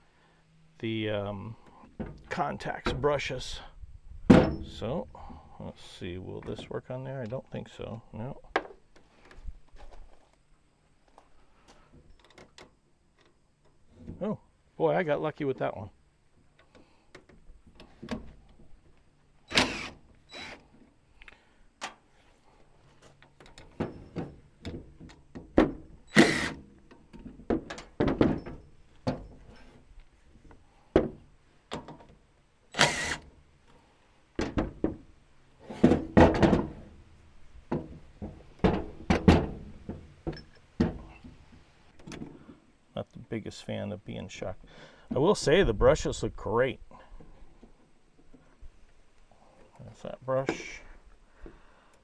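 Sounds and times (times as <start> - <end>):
hand tools clicking and clunking: 11.0 - 14.2, 16.4 - 37.0, 37.6 - 42.6.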